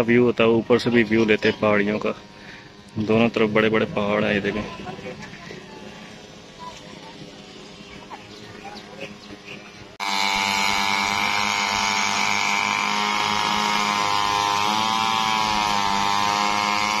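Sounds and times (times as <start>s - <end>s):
brush cutters buzzing at high revs: 0.0s - 4.6s, 9.3s - 17.0s.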